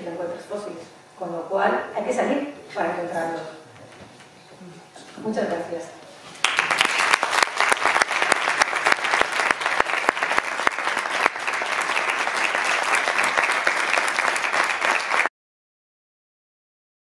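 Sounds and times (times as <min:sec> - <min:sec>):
audience applauding: 0:06.4 - 0:15.3.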